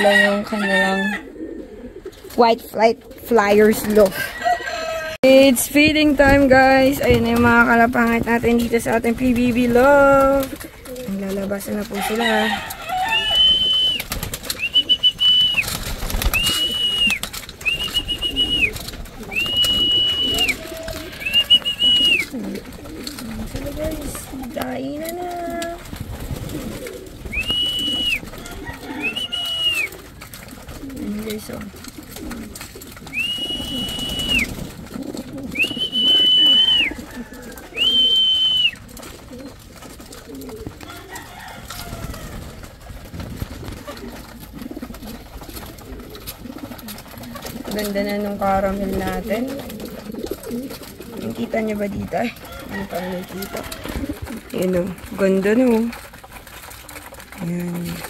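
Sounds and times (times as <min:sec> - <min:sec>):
pigeons pecking: 0:00.0 - 0:58.0
pigeon wing flaps: 0:01.4 - 0:58.0
high whistle-like tones: 0:13.2 - 0:20.6, 0:21.2 - 0:22.3, 0:27.3 - 0:28.2, 0:33.1 - 0:34.6, 0:35.6 - 0:37.0, 0:37.7 - 0:38.8.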